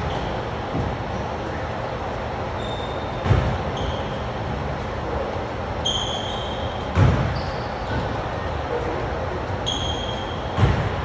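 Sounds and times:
basketball bouncing on gym floor: 0.0s - 1.0s, 2.7s - 4.0s, 5.9s - 8.2s, 9.6s - 11.0s
steady rumbling background: 0.0s - 11.0s
sneaker squeaks on court: 2.6s - 4.4s, 5.8s - 8.2s, 9.6s - 10.9s.

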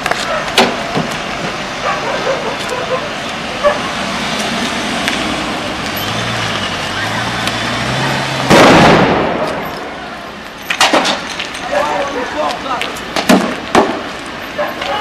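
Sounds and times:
vehicle engines running: 0.0s - 15.0s
loud echoing blast: 8.5s - 9.7s.

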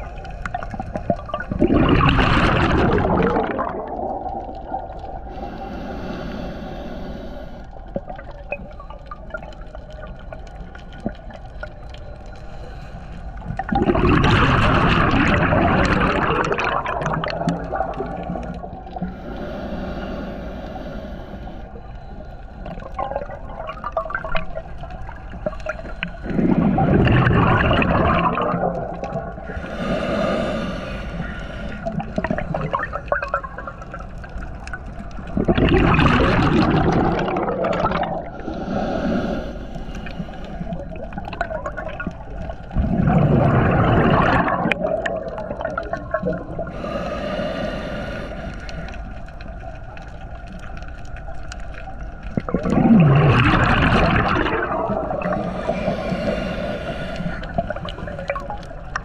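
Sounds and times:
bubbling underwater exhalations: 0.0s - 5.2s, 13.6s - 19.0s, 25.4s - 30.5s, 31.8s - 33.9s, 35.3s - 39.2s, 40.6s - 47.0s, 52.3s - 59.0s
hissing regulator inhalations: 5.2s - 7.8s, 18.9s - 22.9s, 29.4s - 32.7s, 38.3s - 41.0s, 46.6s - 49.2s, 54.9s - 59.0s.

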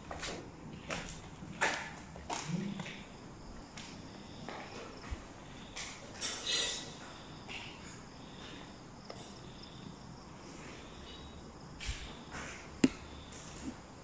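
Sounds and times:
soft scuffing footsteps: 0.0s - 6.0s
crickets chirring: 0.0s - 14.0s.

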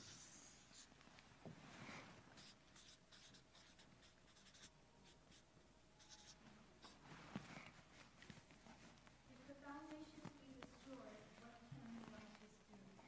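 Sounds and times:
marker scratching on paper: 0.0s - 0.9s, 2.3s - 8.9s.

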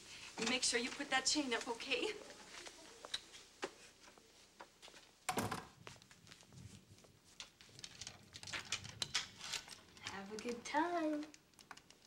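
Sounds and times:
door shutting with thud: 5.3s - 5.7s
door chain sliding metallic clicks: 7.8s - 10.2s.

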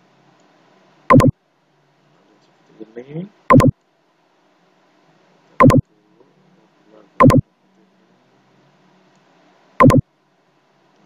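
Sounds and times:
faint room noise: 0.0s - 11.0s
computer mouse clicks: 1.1s - 1.3s, 3.5s - 3.7s.

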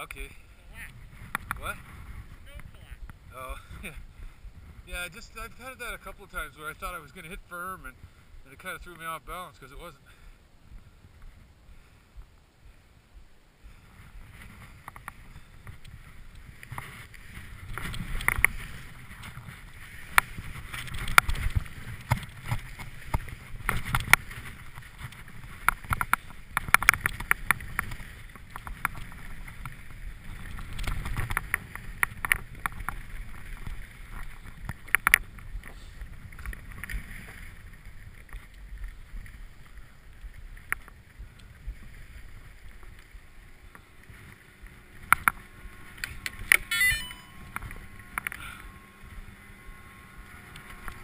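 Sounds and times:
wind rushing on microphone: 0.0s - 51.0s
skis scraping over snow: 13.6s - 51.0s
skis clacking and knocking: 13.7s - 48.6s.

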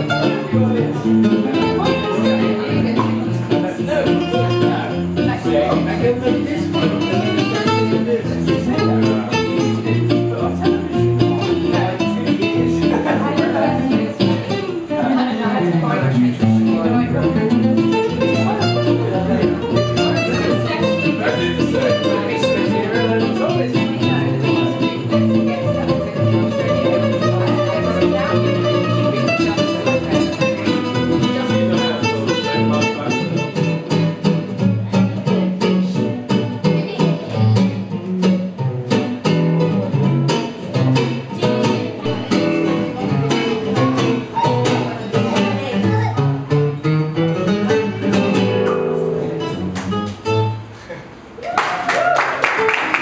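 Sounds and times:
fast guitar strumming: 0.0s - 50.7s
classical guitar playing: 0.0s - 51.4s.

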